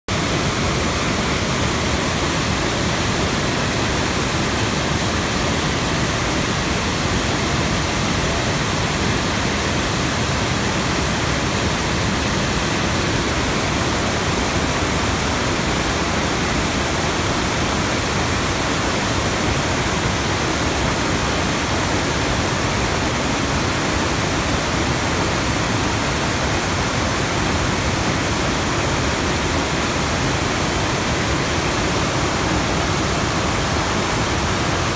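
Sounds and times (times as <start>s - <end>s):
fast whitewater torrent rushing: 0.1s - 34.9s.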